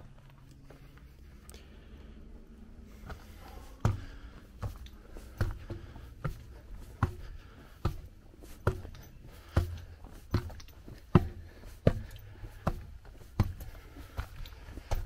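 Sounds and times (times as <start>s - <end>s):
footsteps on metal stairs: 2.8s - 15.0s.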